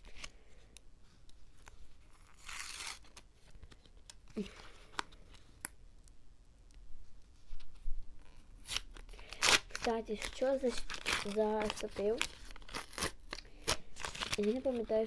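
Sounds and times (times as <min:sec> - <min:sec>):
paper packet tearing: 0:02.1 - 0:03.2, 0:08.6 - 0:15.0
paper crinkling: 0:07.4 - 0:15.0.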